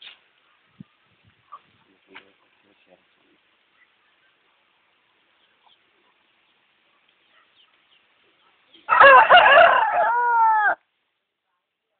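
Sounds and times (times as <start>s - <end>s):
rooster crowing: 8.9s - 10.8s.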